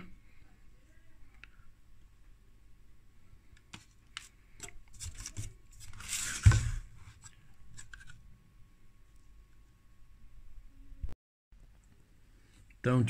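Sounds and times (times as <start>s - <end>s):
plastic scraping rub: 4.2s - 8.2s.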